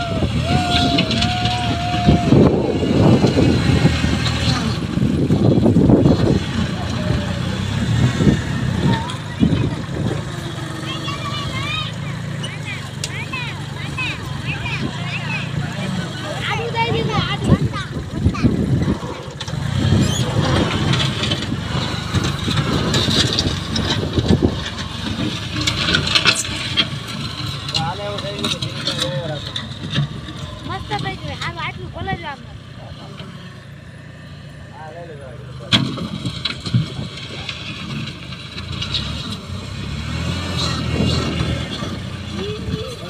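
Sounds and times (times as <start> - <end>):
tractor diesel engine running: 0.0 - 43.0.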